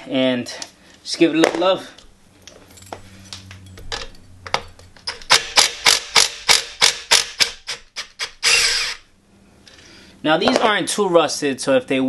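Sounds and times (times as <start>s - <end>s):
impact gun hammering on a nut: 5.3s - 7.8s.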